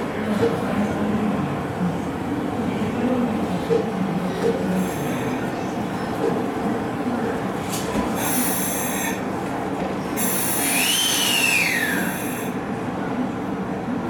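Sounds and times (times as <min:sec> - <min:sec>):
compressed-air hiss: 0:10.2 - 0:12.5
whistling tone: 0:10.6 - 0:12.2.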